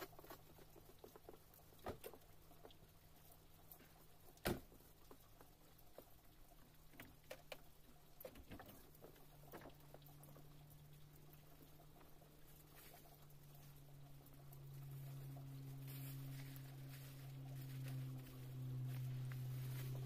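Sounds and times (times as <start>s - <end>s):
faint ticks and taps: 0.0s - 20.0s
low steady hum: 0.0s - 20.0s.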